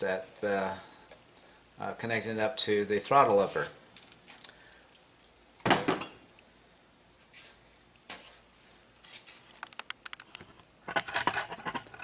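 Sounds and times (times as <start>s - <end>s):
high metallic ring: 6.0s - 6.6s.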